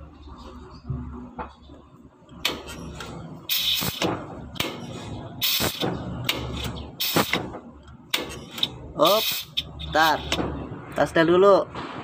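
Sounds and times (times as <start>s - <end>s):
air hissing in short bursts: 3.5s - 4.1s, 4.9s - 5.8s, 7.0s - 7.4s, 8.5s - 10.4s.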